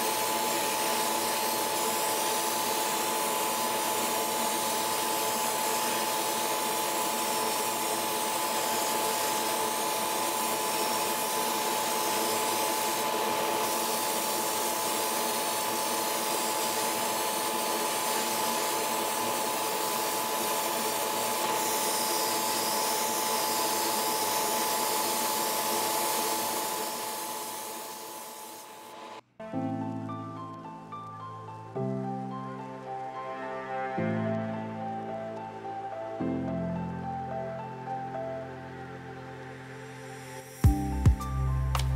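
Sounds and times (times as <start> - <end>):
airbrush spraying paint: 0.0 - 29.2
extractor fan whirring: 0.0 - 29.2.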